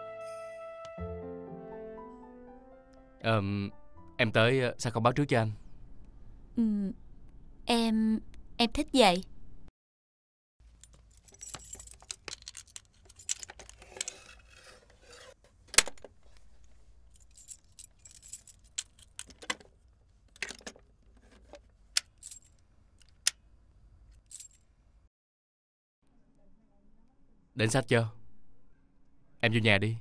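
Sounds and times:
keys jangling: 10.8 - 14.2, 17.1 - 19.6, 22.0 - 23.2, 24.1 - 24.6.

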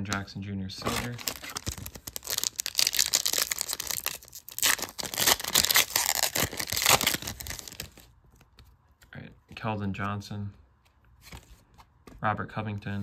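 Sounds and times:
foil wrapper tearing and crinkling: 0.8 - 8.1.

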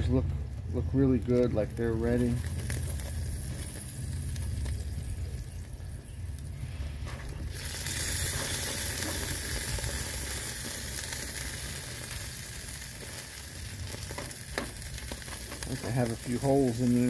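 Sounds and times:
low rumble: 0.0 - 15.8
meat sizzling on a grill: 0.6 - 17.0.

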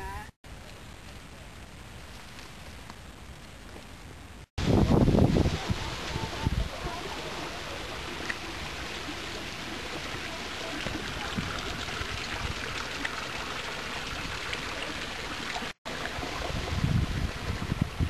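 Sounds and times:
running water rushing: 4.6 - 18.0.

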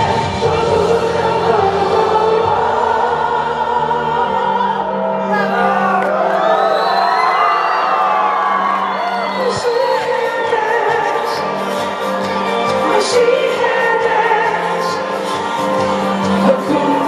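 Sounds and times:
backing track music: 0.0 - 17.0
man singing into a microphone: 16.4 - 17.0.

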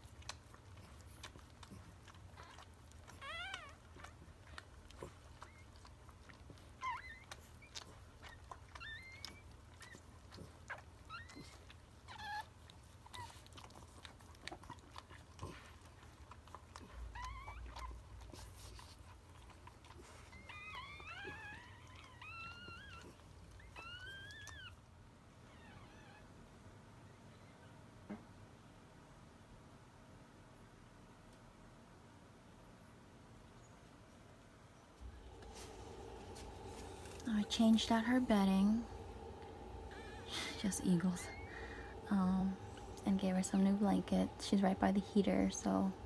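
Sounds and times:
puppies squeaking and whining: 2.4 - 14.8, 16.4 - 19.0, 19.9 - 24.8, 35.2 - 46.0.

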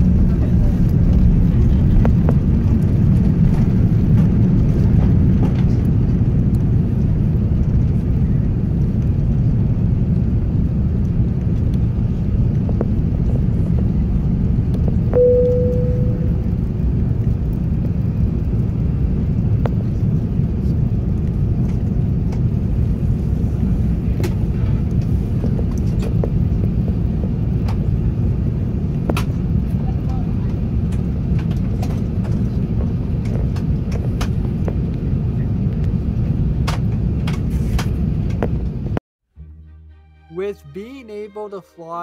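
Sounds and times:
jet engine rumble and airflow: 0.0 - 39.0
bright cabin chime tone: 15.2 - 16.4.

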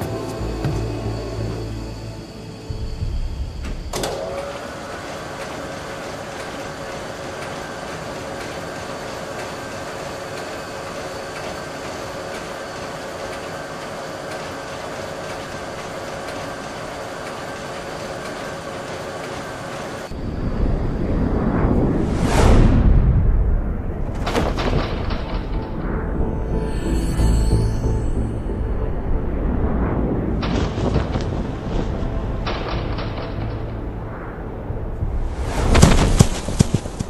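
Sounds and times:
low rumble: 0.0 - 4.0, 20.1 - 37.0
conveyor whirring and humming: 0.0 - 37.0.

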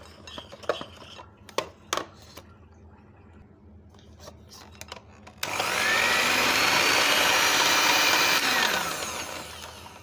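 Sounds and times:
hand mixer motor whine: 5.4 - 10.0.

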